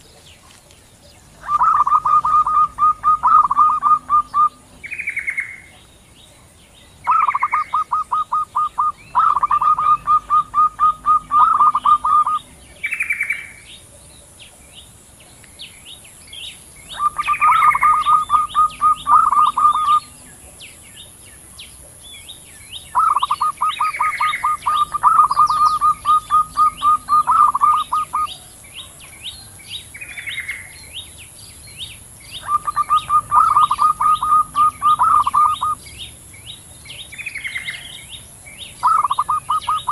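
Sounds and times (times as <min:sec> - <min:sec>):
doves cooing: 0:00.0 - 0:05.9, 0:07.0 - 0:14.4, 0:16.8 - 0:20.8, 0:22.9 - 0:30.8, 0:32.3 - 0:35.9, 0:38.8 - 0:39.9
small birds chirping: 0:00.0 - 0:39.9.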